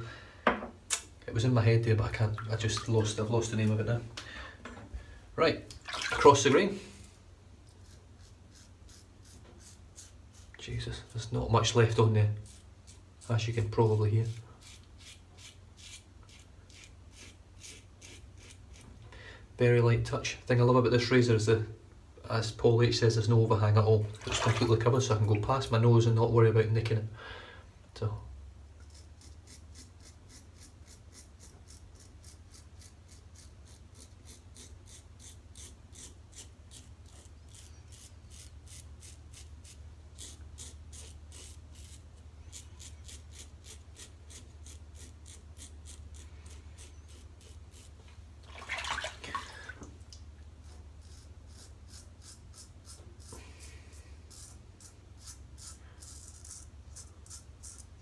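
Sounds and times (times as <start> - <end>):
razor scraping stubble: 7.6 - 19.0, 28.8 - 48.0, 50.6 - 58.0.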